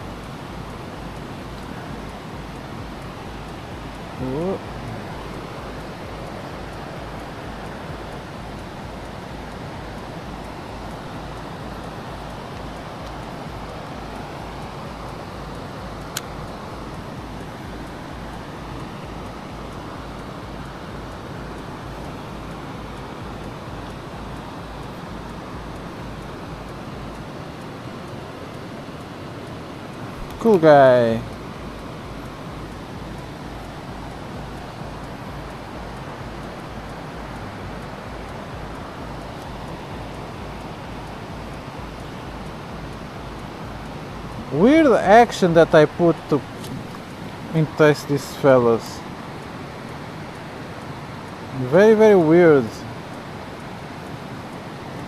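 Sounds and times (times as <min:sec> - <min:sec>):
wind buffeting microphone: 0:00.0 - 0:47.8
faint light ticks: 0:00.0 - 0:55.0
outdoor rushing noise: 0:00.0 - 0:55.0
sharp click: 0:16.0 - 0:16.4.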